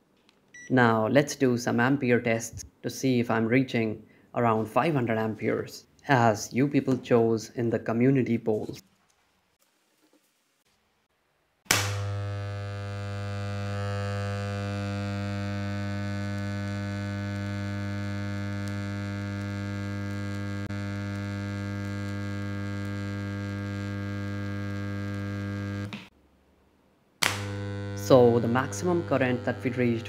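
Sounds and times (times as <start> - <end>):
transformer humming: 11.9 - 26.1, 27.2 - 30.0.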